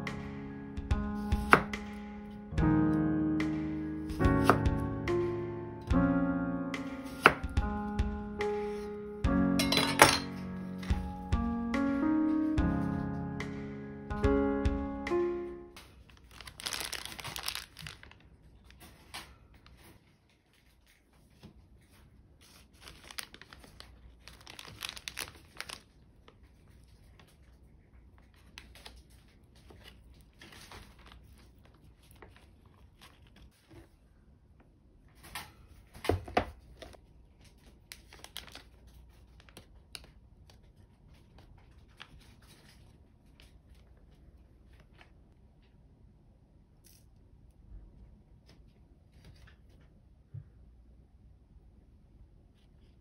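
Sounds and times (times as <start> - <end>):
plastic bag crinkling: 15.8 - 19.8, 22.4 - 27.0, 37.4 - 40.1.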